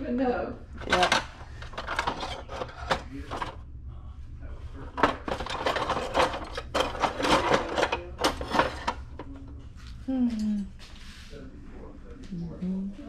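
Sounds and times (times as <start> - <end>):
metal objects clattering in box: 0.8 - 3.6, 5.0 - 9.2.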